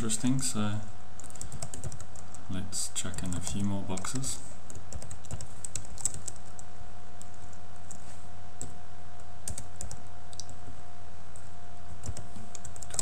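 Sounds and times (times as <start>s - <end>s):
computer keyboard typing: 1.2s - 2.4s, 3.0s - 8.0s, 8.6s - 10.6s, 12.0s - 13.0s.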